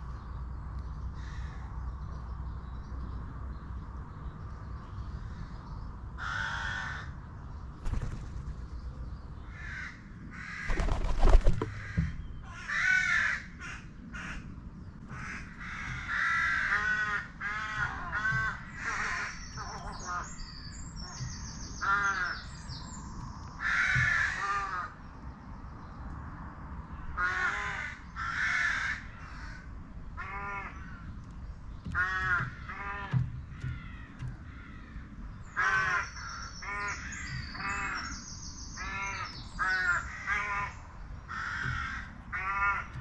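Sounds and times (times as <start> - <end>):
crows cawing: 1.2 - 1.6, 6.2 - 7.2, 9.5 - 14.5, 15.1 - 20.4, 21.8 - 22.4, 23.6 - 25.0, 27.2 - 31.1, 31.8 - 38.2, 38.8 - 43.0.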